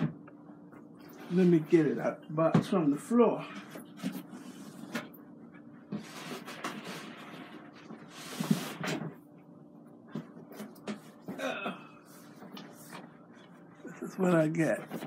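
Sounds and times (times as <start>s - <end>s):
cardboard scraping and rustling: 5.9s - 9.2s.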